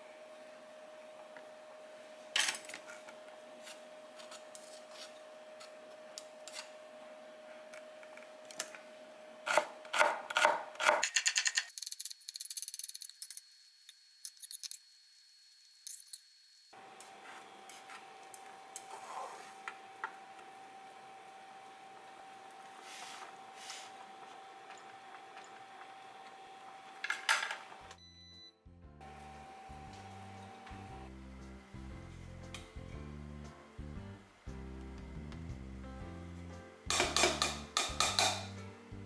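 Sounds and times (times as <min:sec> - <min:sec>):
steady hum: 0:29.0 - 0:39.0
knife chopping on wooden board: 0:36.9 - 0:38.5.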